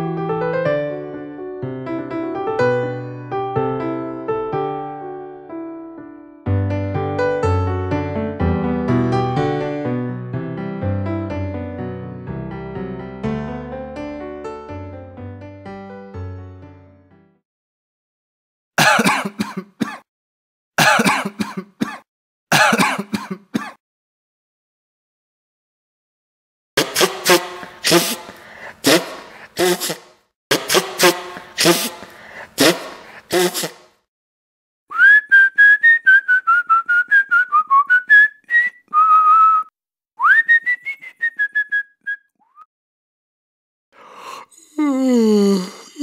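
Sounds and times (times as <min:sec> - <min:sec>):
person coughing: 0:18.8 - 0:20.1, 0:20.8 - 0:23.8, 0:26.8 - 0:33.8
person whistling a tune: 0:34.9 - 0:42.7.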